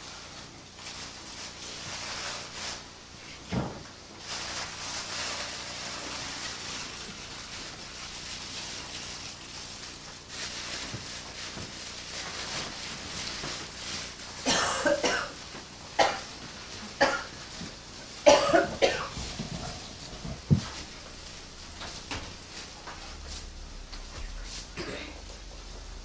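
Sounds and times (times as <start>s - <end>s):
material rustling on wooden floor: 4.2s - 15.0s, 16.3s - 24.9s.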